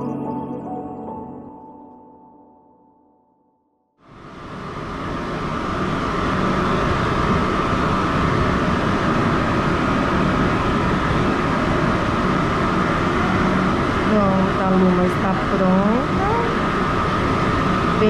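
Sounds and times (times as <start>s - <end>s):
grooming dryer blowing air: 5.1s - 18.0s.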